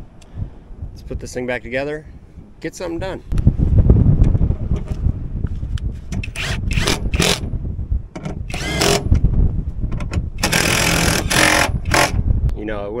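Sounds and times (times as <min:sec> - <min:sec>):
cordless drill whining: 0:06.2 - 0:07.4, 0:08.5 - 0:09.1, 0:10.4 - 0:12.2.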